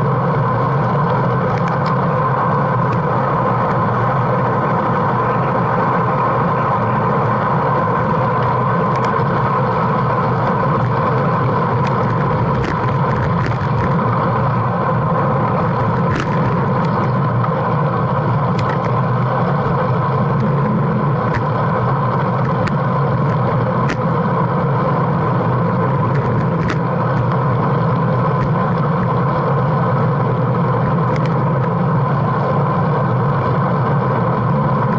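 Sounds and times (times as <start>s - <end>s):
tyre-on-road rumble: 0.0s - 34.9s.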